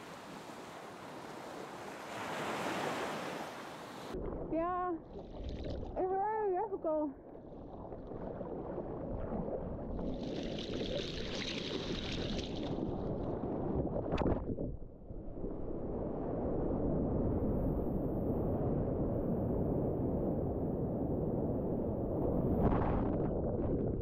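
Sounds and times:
rushing water: 0.0 - 6.6, 7.2 - 14.4
wind rumbling on microphone: 7.4 - 24.0.

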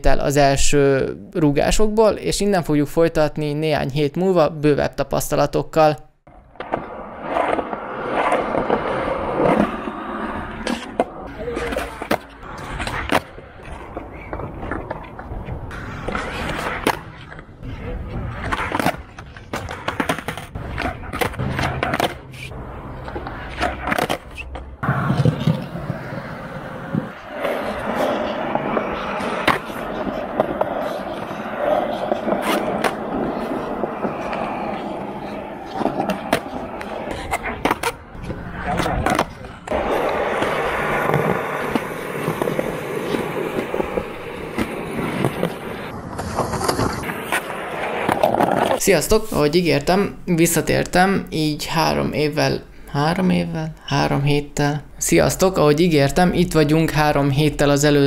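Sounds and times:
skateboard wheels rolling: 6.3 - 50.6
skateboard clacking: 6.5 - 48.8.

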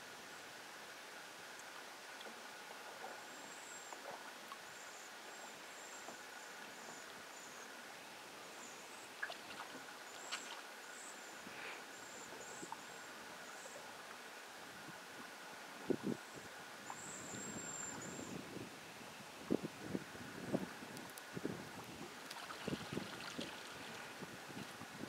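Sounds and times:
steady hiss: 0.0 - 25.0
water splashes and drips: 9.2 - 10.7, 22.1 - 24.8.

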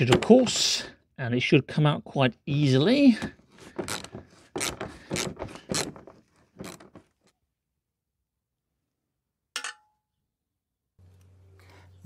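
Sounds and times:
ratchet rasping: 3.5 - 7.0.

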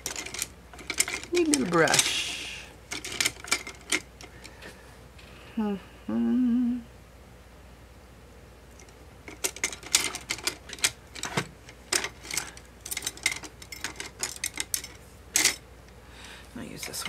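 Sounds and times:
paintbrushes clattering: 0.0 - 4.5, 8.8 - 15.6
person humming: 2.0 - 2.7, 5.5 - 6.9.

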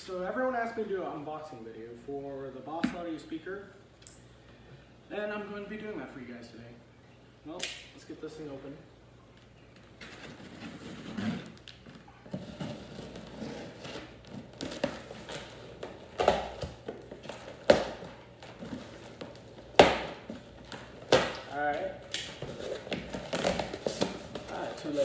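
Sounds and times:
cardboard rustling and scraping: 9.9 - 21.8, 22.4 - 25.0.

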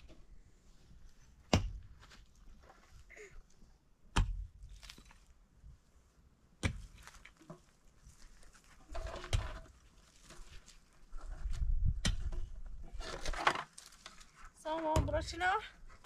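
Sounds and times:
mattock striking stony soil: 1.4 - 2.4, 4.1 - 5.4, 6.6 - 15.3
earth and stones scraping: 4.6 - 5.4, 6.7 - 16.0.

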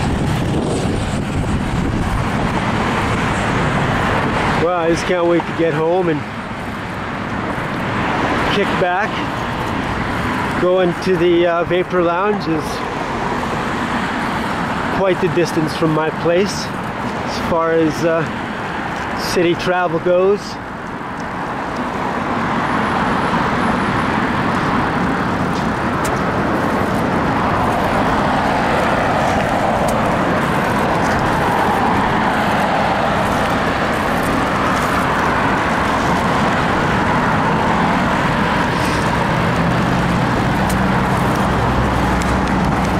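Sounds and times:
road traffic: 0.0 - 42.9
low engine hum: 20.7 - 42.9.

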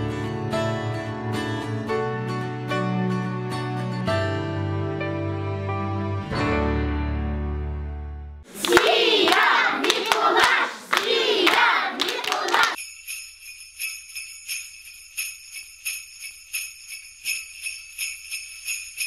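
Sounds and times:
children shouting and singing: 8.5 - 12.8
hand claps: 8.5 - 12.8
jingle bells shaken: 12.0 - 19.0.

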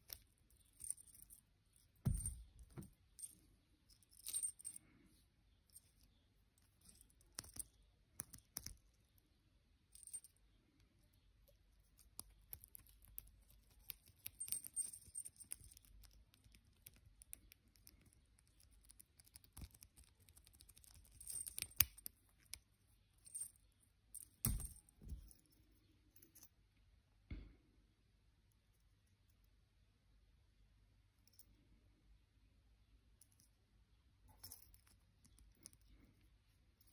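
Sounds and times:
padlock metallic clicks and scrapes: 5.5 - 9.3, 9.9 - 25.6, 34.3 - 36.9.

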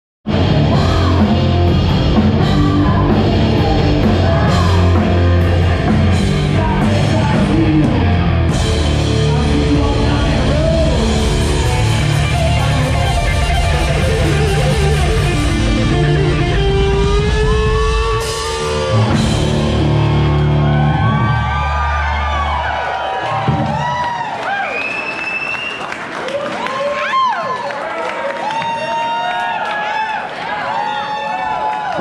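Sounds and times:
live rock band playing: 0.3 - 22.6.

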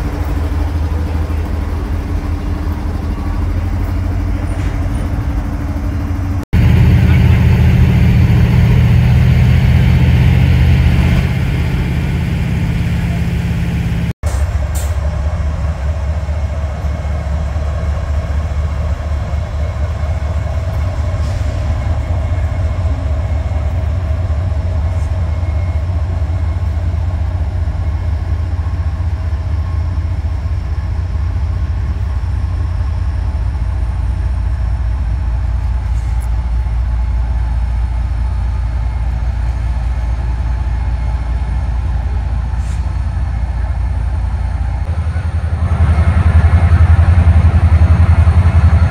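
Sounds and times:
diesel locomotive rumbling: 0.0 - 48.9.

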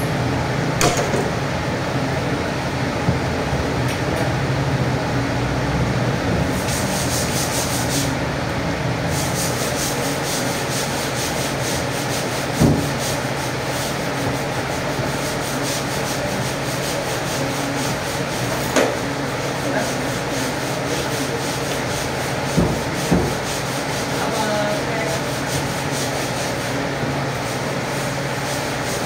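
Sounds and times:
knock: 0.8 - 1.3.

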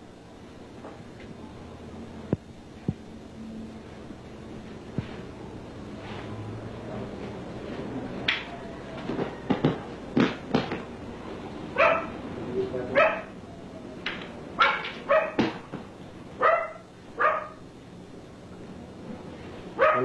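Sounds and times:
sharp knocks: 9.2 - 10.8
dog barking: 11.8 - 12.2, 12.9 - 13.4, 14.6 - 15.5, 16.4 - 17.6, 19.8 - 20.0.

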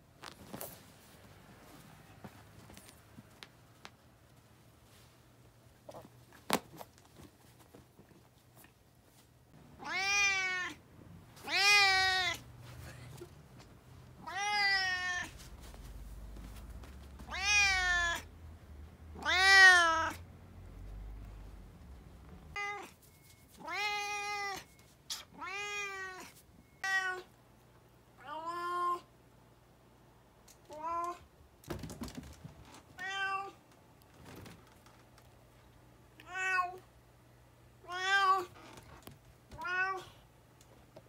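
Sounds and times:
cat meowing: 9.8 - 10.8, 11.4 - 12.4, 14.2 - 15.4, 17.3 - 18.3, 19.2 - 20.2, 23.6 - 27.3, 33.0 - 33.6, 36.2 - 36.8, 37.8 - 38.6, 39.5 - 40.2.

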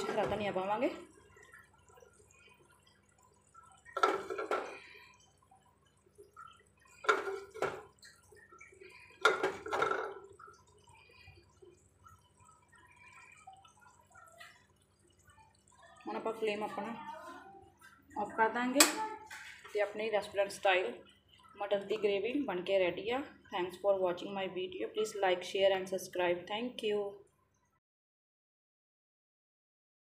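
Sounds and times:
curry bubbling in a pan: 0.0 - 27.8
pan clattering: 4.0 - 4.8, 9.2 - 10.3.

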